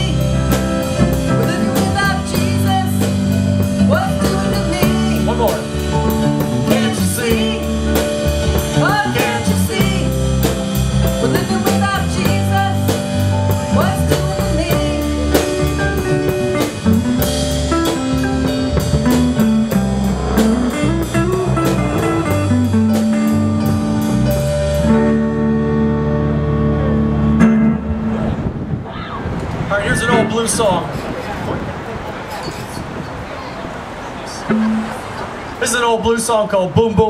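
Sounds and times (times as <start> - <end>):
drum kit cymbal beat: 0.0 - 24.9
electric guitar lead with bent notes: 0.0 - 30.4, 34.4 - 35.6
bass guitar: 0.0 - 31.2, 34.5 - 35.4
keyboard: 0.0 - 37.0.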